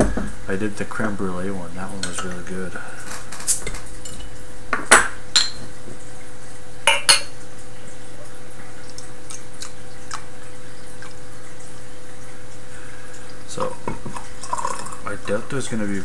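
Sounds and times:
steady background hum: 0.0 - 16.0
glass bottle clinking: 4.8 - 5.7, 6.9 - 7.4.

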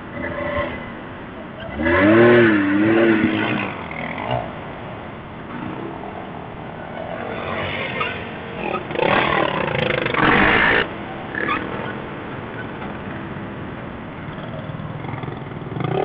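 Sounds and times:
off-road vehicle engines running: 0.0 - 16.0
engine revving: 1.6 - 4.8, 7.3 - 11.7, 15.0 - 16.0.

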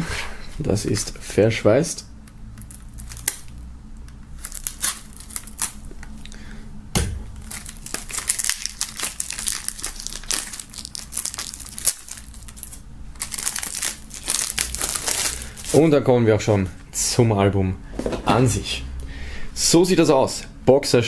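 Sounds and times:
plastic wrap crinkling and tearing: 2.6 - 3.6, 4.3 - 6.3, 7.3 - 15.9
sharp knock: 7.0 - 7.4.

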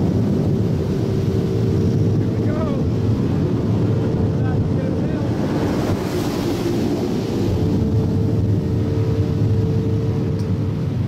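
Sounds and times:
motor humming steadily: 7.5 - 11.0.

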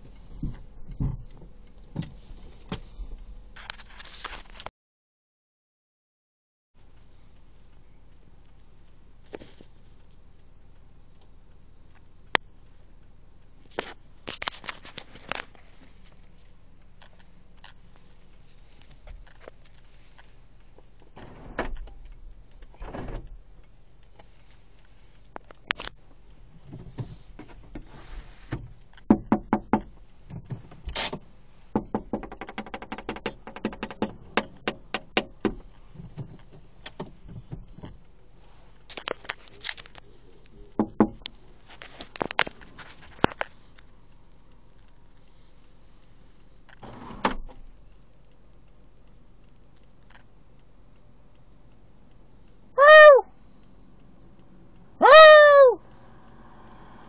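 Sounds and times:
animal knocking on car body: 29.1 - 30.5, 31.7 - 35.6.

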